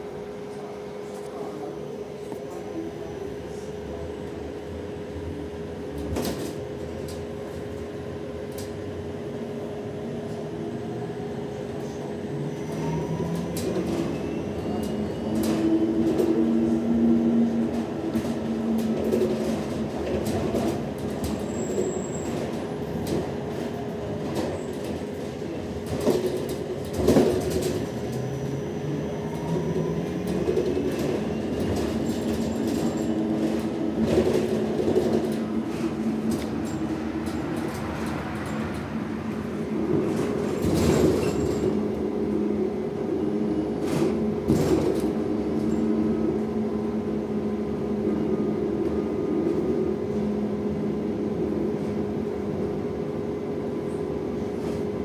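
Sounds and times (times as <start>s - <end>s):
road rumble: 3.5s - 53.6s
knocks and rattles in cabin: 30.2s - 38.1s.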